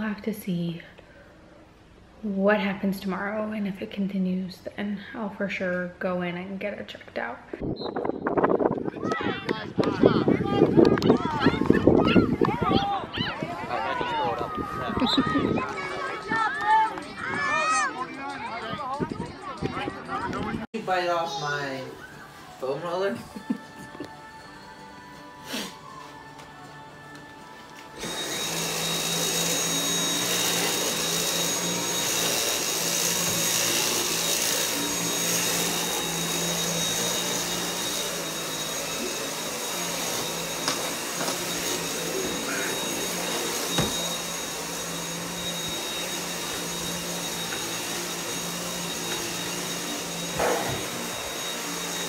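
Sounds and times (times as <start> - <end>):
cordless vacuum cleaner running: 28.0 - 52.0.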